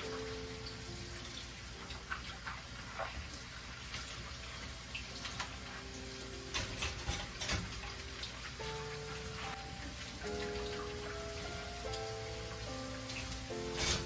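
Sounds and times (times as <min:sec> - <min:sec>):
water running and splashing: 0:00.0 - 0:14.0
dishes clinking: 0:06.5 - 0:08.0, 0:13.6 - 0:14.0.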